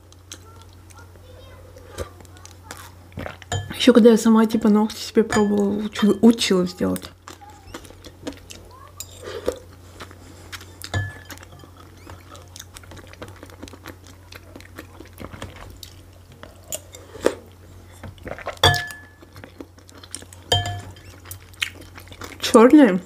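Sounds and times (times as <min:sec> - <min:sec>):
chewing: 0:00.1 - 0:03.5, 0:07.0 - 0:22.5
cutlery scraping a dish: 0:09.0 - 0:09.5, 0:10.9 - 0:12.3, 0:20.5 - 0:21.3.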